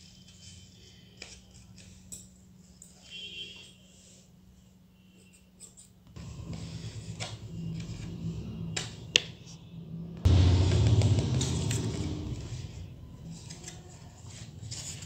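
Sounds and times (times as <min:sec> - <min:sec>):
paper rustling and scraping: 0:00.0 - 0:03.2, 0:05.6 - 0:09.0, 0:12.4 - 0:15.0.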